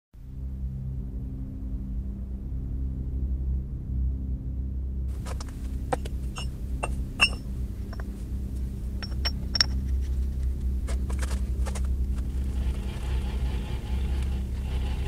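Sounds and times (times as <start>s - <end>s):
steady low hum: 0.2s - 15.0s
steel parts clinking on metal: 6.0s - 8.1s, 9.0s - 9.9s.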